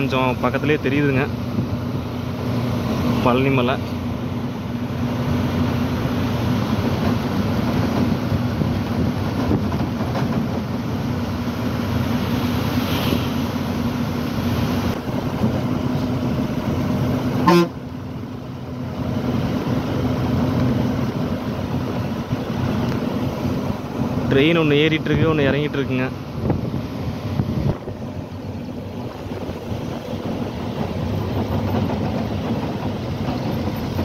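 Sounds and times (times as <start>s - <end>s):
truck engine droning: 0.0s - 34.0s
horn toot: 17.4s - 17.8s.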